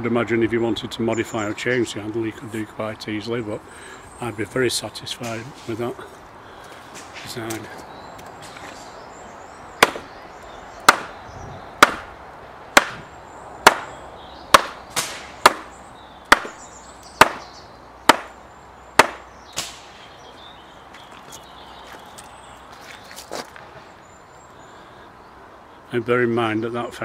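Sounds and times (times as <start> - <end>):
machete chopping wet wood: 9.8 - 10.1, 10.8 - 11.2, 11.8 - 12.1, 12.8 - 15.7, 16.3 - 16.6, 17.2 - 17.5, 18.1 - 18.4, 19.0 - 19.9.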